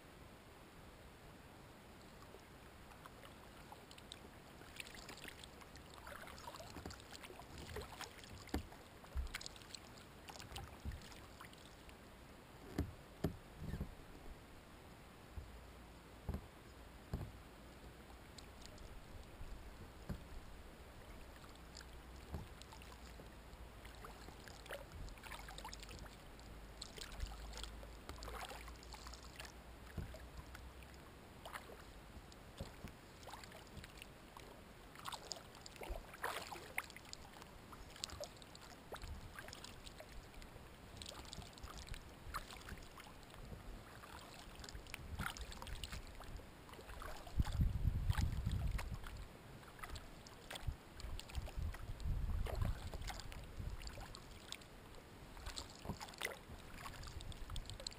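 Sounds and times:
kayak paddle splashing water: 2.9 - 11.9, 21.0 - 54.7, 55.3 - 57.9
water dripping: 55.4 - 57.9.

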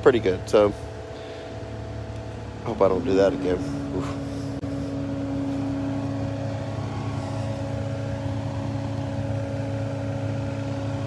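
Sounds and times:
mulching machine engine running: 0.0 - 11.0.

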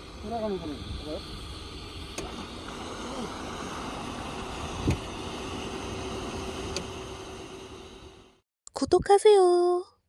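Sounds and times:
churning water: 0.0 - 7.6
steady hum: 0.0 - 8.4.

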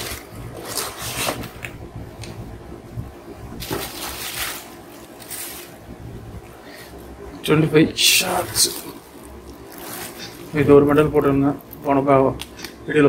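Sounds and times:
cardboard boxes rustling: 0.0 - 1.6, 3.6 - 5.8
plastic wrap crinkling: 0.0 - 2.4, 3.6 - 5.9, 8.1 - 12.0.

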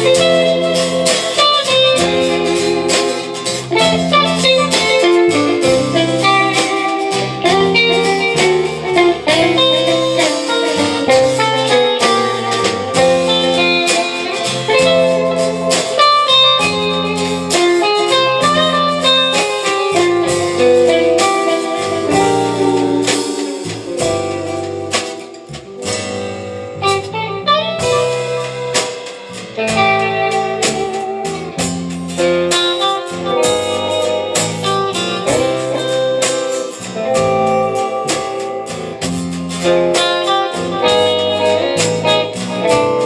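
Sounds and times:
acoustic rhythm guitar: 0.0 - 43.0
bass guitar: 0.0 - 43.0
drums: 0.0 - 43.0
electric guitar melody: 0.0 - 43.0.

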